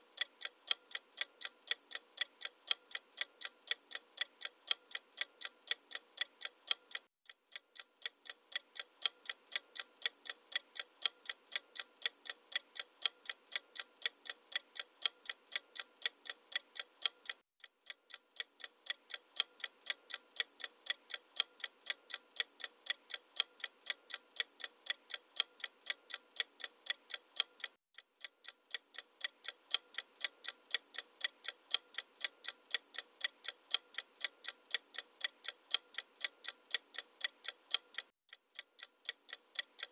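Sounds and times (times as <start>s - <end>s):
clock ticking: 0.0s - 39.9s.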